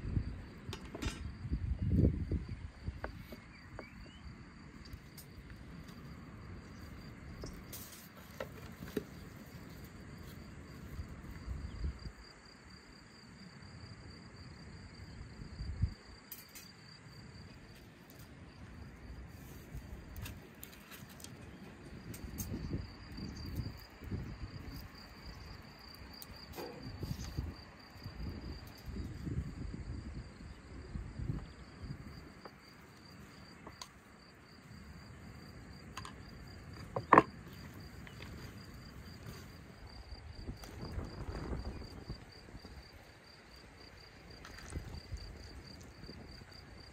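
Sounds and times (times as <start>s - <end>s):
insects chirping: 0.0s - 46.9s
rustles: 4.8s - 11.5s, 36.6s - 42.3s.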